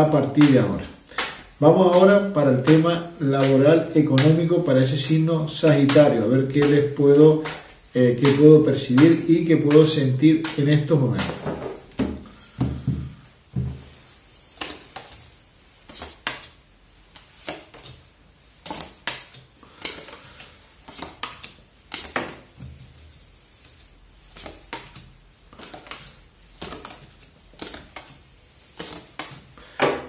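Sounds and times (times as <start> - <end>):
cards snapping on tabletop: 18.6 - 20.2, 24.4 - 28.2, 28.8 - 29.5.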